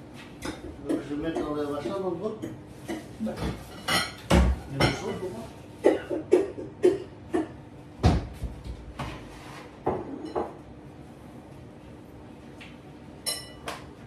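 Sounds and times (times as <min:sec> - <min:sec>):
crockery clinking: 0:13.2 - 0:13.7.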